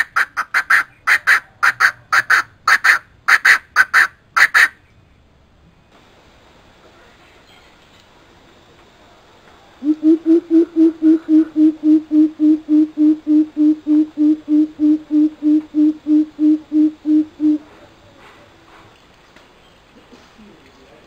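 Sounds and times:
bird hooting: 9.8 - 17.8.

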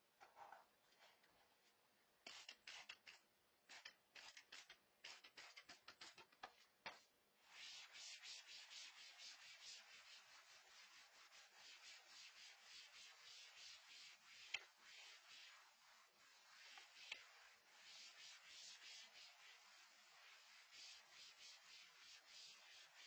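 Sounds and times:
spray bottle squirting: 2.3 - 6.2
cloth rubbing on whiteboard: 7.4 - 23.0.

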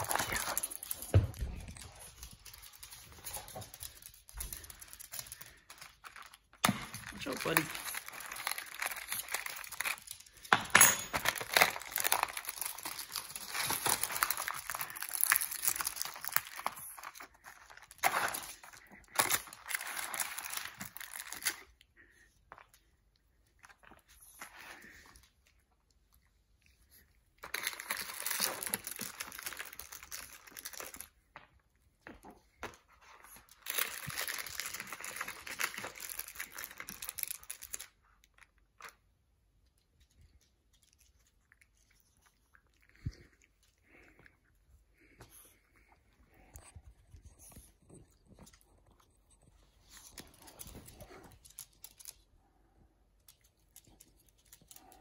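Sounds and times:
cardboard crinkling and tearing: 7.2 - 10.3, 11.2 - 21.6.

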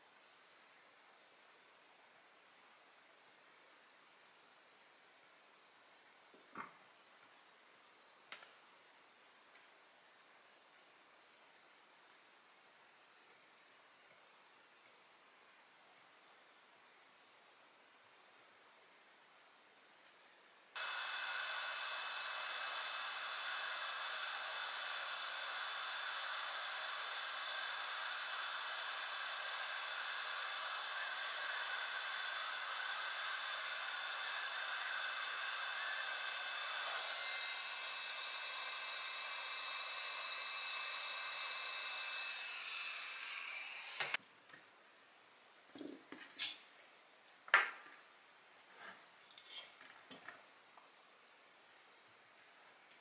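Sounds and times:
motor blower whining: 20.8 - 44.2.

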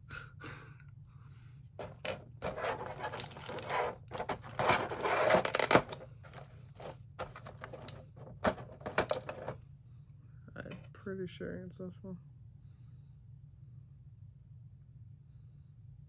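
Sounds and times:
plastic parts rustling and scraping: 1.8 - 9.6.

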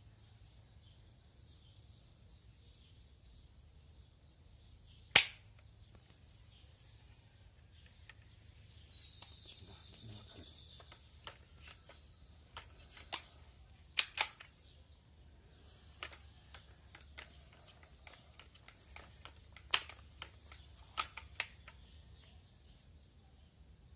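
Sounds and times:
air rifle shot crack: 5.1 - 5.5.

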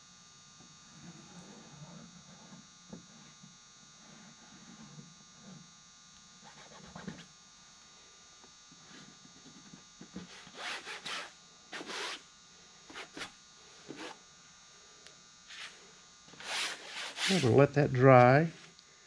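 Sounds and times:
steady electrical hum: 0.0 - 19.0
hand rubbing on fabric: 16.4 - 17.7.

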